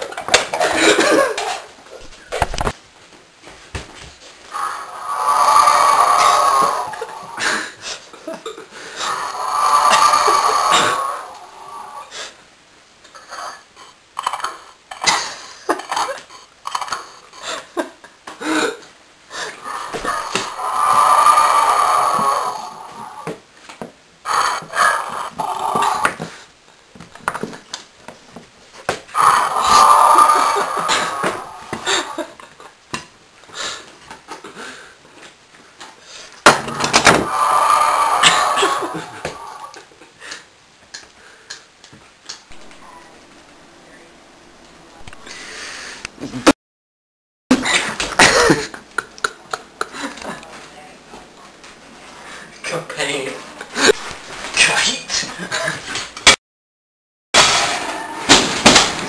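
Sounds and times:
rough hissing noise: 0:04.2 - 0:12.9, 0:19.2 - 0:26.6, 0:29.1 - 0:32.5, 0:36.0 - 0:40.6
person making squeaky vocal noises: 0:04.6 - 0:07.7, 0:19.5 - 0:23.3, 0:29.2 - 0:32.3.

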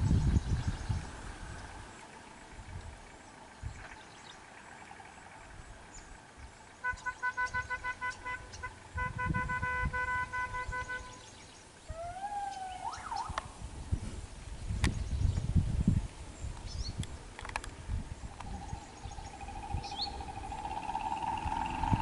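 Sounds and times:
sliding wavering call: 0:06.8 - 0:11.3, 0:11.9 - 0:13.6, 0:18.4 - 0:22.0
vehicle horn honking: 0:06.8 - 0:11.3.

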